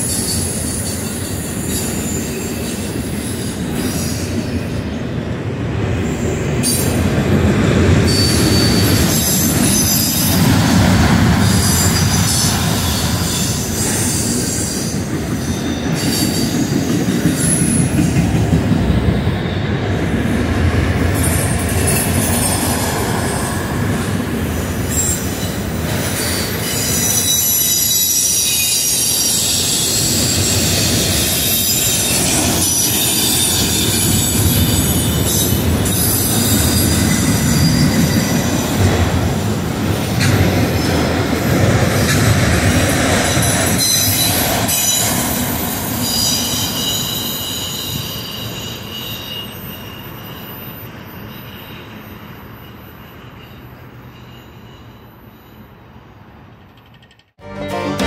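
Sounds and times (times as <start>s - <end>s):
train wheels squealing: 0.0s - 5.0s, 5.9s - 20.4s, 21.1s - 38.8s, 40.2s - 57.3s
train cars rumbling past: 0.0s - 58.0s
train wheel clacks: 25.1s - 46.8s.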